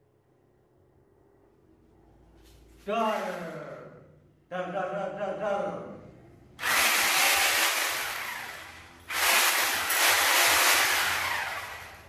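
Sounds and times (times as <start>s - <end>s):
angle grinder whirring: 6.6s - 12.0s.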